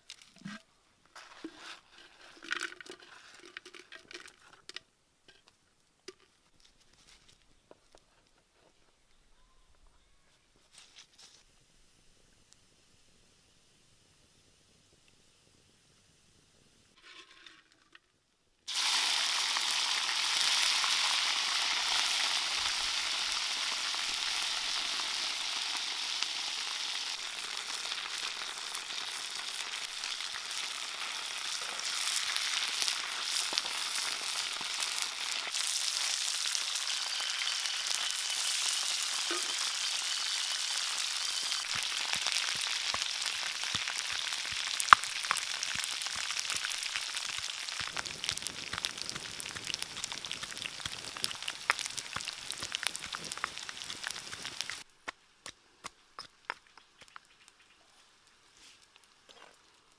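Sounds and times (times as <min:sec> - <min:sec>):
oil crackling and popping: 0:00.0 - 0:06.7, 0:18.7 - 0:59.9
insects sizzling in hot oil: 0:18.7 - 0:54.9.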